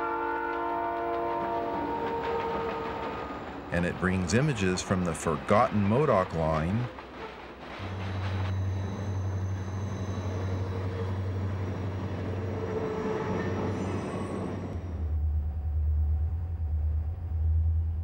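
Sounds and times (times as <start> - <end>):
diesel locomotive engine drone: 0.0 - 18.0
track noise: 1.0 - 17.4.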